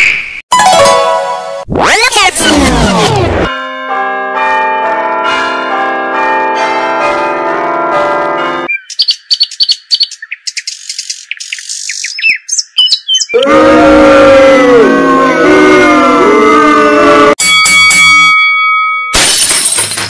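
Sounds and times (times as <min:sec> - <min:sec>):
bells ringing: 0:03.5 - 0:08.7, 0:17.4 - 0:20.0
loud booing: 0:13.4 - 0:17.4.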